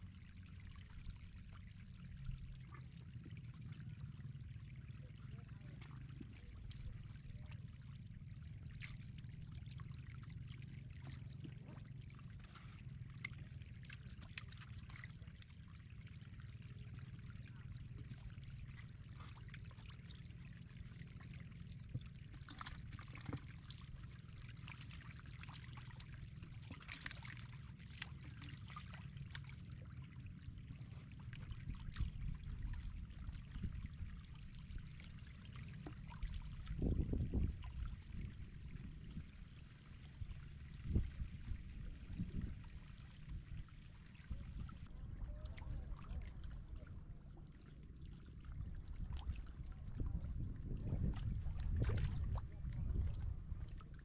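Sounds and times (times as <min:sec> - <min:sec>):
low rumble: 0:29.2 - 0:54.0.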